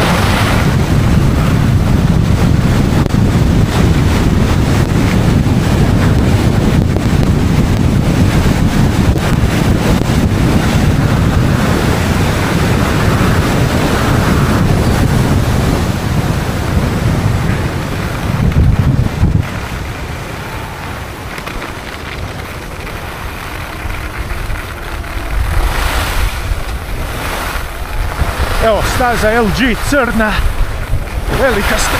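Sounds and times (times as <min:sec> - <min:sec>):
skis carving on snow: 0:00.0 - 0:31.9
wind buffeting microphone: 0:00.0 - 0:31.9.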